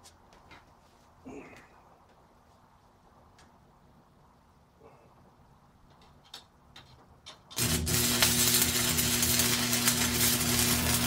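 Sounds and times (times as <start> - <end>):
low electrical hum: 0.0 - 11.0
welding arc crackling: 7.5 - 11.0.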